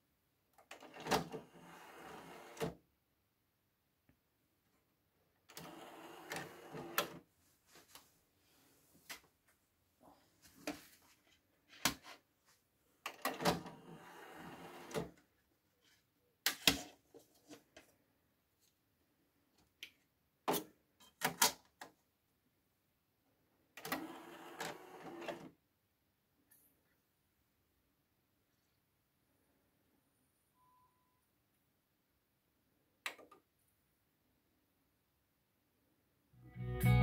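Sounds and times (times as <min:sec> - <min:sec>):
cd tray sliding: 0:01.5 - 0:02.7, 0:05.5 - 0:07.2.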